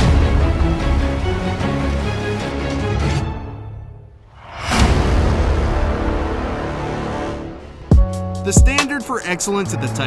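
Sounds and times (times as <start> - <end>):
instrumental beat music: 7.9 - 10.0.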